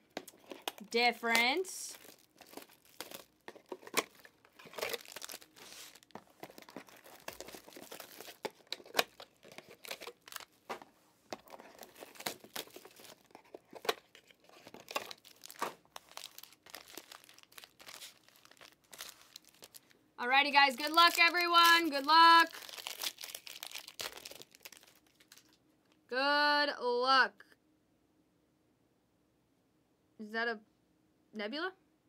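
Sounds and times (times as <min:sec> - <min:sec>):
plastic wrappers crinkling and tearing: 0:00.0 - 0:25.6.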